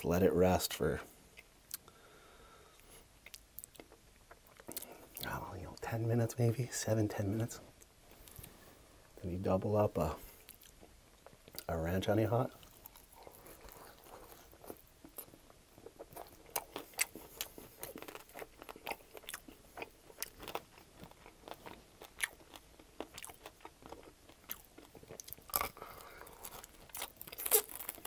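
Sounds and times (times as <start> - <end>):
chewing crispy chicken wings: 12.5 - 28.0.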